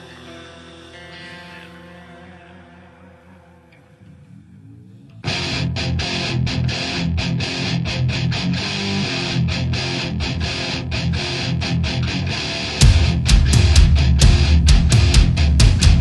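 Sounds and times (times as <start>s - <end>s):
distorted electric guitar riff: 0.0s - 16.0s
heavy metal band playing: 5.2s - 16.0s.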